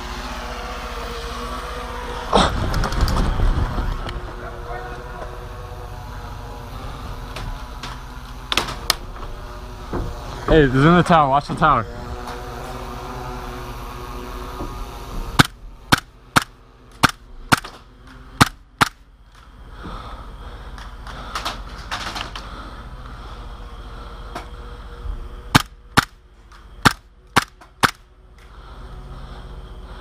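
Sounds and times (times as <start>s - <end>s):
airsoft guns popping: 15.4s - 17.8s, 18.4s - 19.5s, 25.5s - 28.0s.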